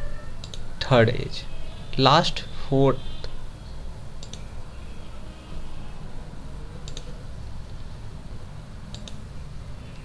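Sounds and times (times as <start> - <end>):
steady low hum: 0.0 - 10.0
computer mouse clicks: 0.4 - 0.6, 4.2 - 4.5, 6.8 - 7.2, 8.9 - 9.2.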